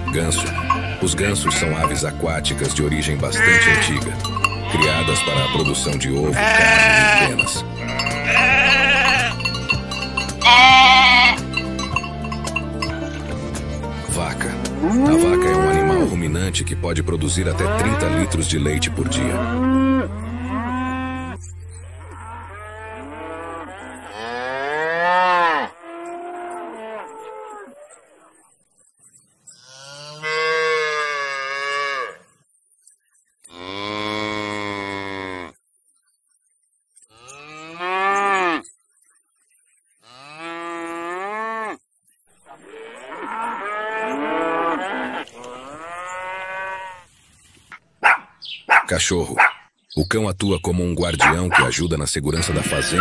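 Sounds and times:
cows mooing: 0.0 - 13.3, 14.7 - 16.3, 17.4 - 28.2, 29.6 - 32.2, 33.5 - 35.6, 40.0 - 41.8, 42.5 - 47.1, 51.2 - 53.0.

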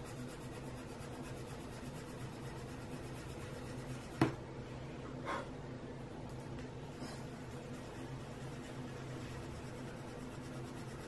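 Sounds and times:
pencil scratching on paper: 0.0 - 4.3, 7.0 - 11.0.

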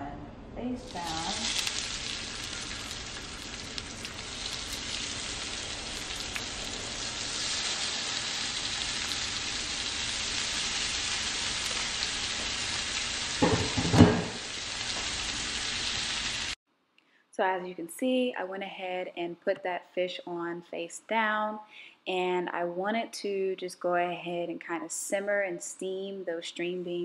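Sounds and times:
fish sizzling in a skillet: 0.9 - 16.6.

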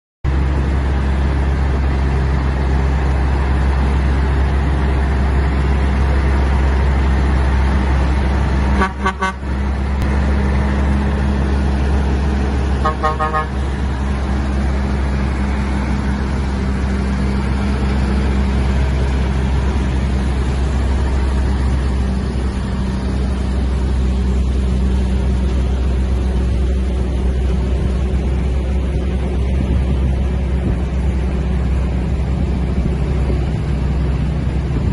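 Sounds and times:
truck diesel engines droning: 0.3 - 34.9
short horn toots: 8.7 - 9.5, 12.8 - 13.7.

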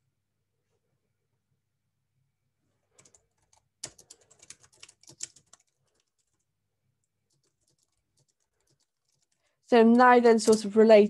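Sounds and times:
typing on computer keyboard: 2.9 - 6.5, 7.1 - 9.5, 10.3 - 10.7.

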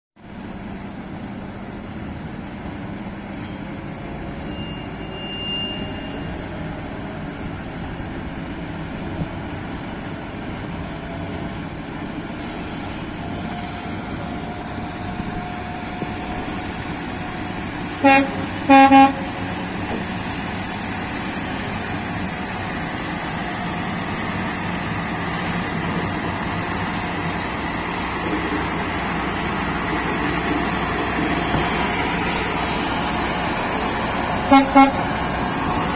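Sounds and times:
truck horn toots: 4.5 - 6.4, 18.0 - 19.5, 34.5 - 35.1
truck engine running: 6.3 - 35.9.

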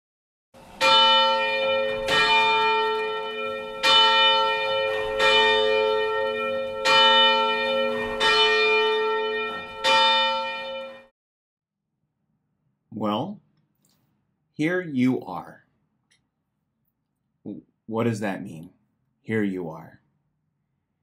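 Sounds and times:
church bell tolling: 0.6 - 11.1.

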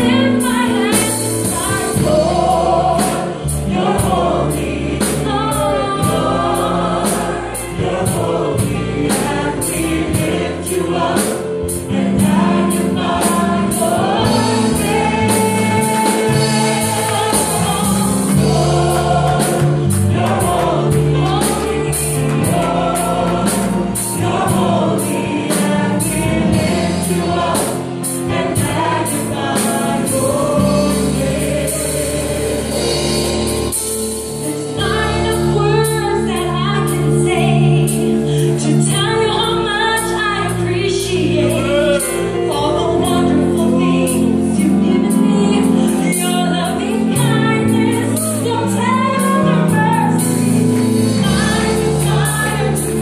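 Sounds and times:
woman singing lead: 0.0 - 4.7, 34.5 - 53.0
backing singers: 0.0 - 53.0
band playing: 0.0 - 53.0.

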